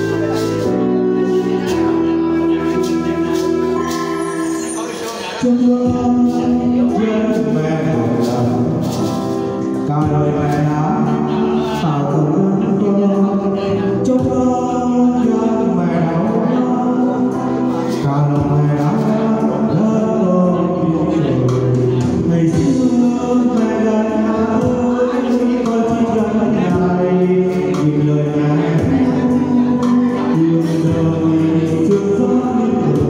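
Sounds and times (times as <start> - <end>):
musical accompaniment: 0.0 - 33.0
man and woman singing duet: 9.9 - 33.0.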